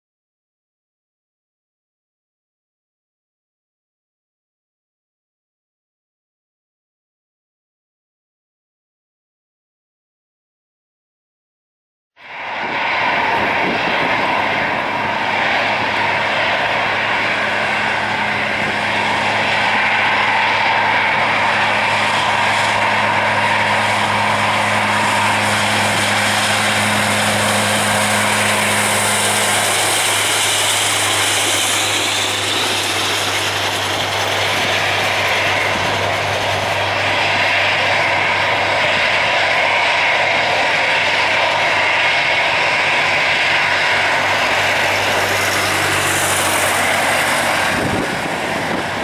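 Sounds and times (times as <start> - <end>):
jet engines running: 12.2 - 49.0
higher hum: 12.6 - 38.8.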